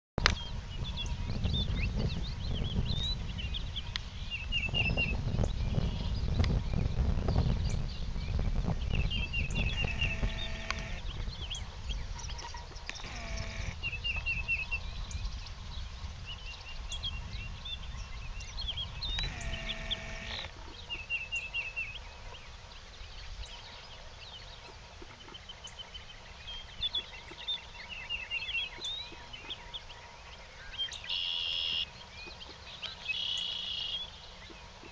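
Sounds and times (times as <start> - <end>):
songbirds chirping: 0.2 - 34.9
animal calls: 9.2 - 11.2, 12.3 - 14.0, 19.1 - 20.8.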